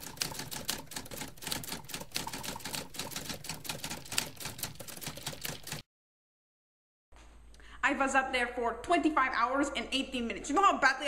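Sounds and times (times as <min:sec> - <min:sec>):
typewriter keys clacking: 0:00.0 - 0:05.8.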